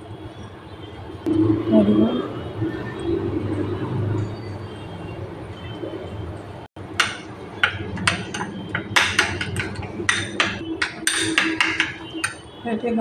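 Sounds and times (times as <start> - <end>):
metal spoon clinking glass bowl: 7.0 - 12.6.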